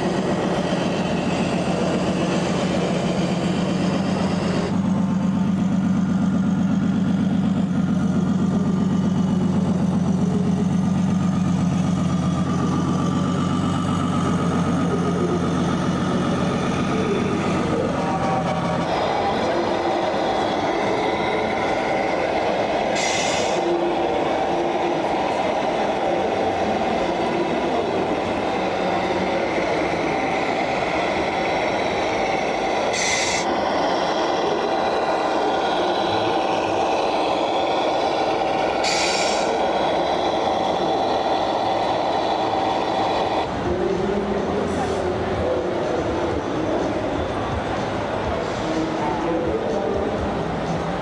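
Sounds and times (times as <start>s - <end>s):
model truck engine drone: 0.0s - 51.0s
short hisses: 23.0s - 23.6s, 38.8s - 39.6s.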